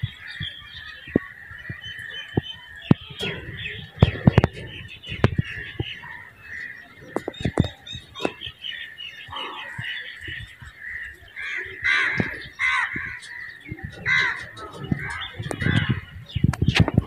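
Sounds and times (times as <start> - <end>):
birds chirping and chattering: 0.0 - 17.0
loud bird calls: 0.0 - 17.0
sharp clicks and knocks: 0.0 - 17.0.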